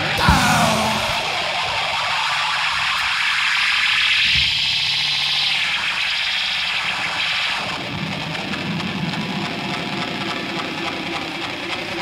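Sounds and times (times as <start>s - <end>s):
distorted electric guitar: 0.0s - 2.0s.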